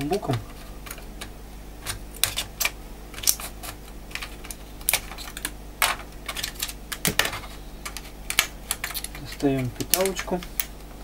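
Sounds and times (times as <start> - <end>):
plastic case parts clicking: 4.1 - 10.7.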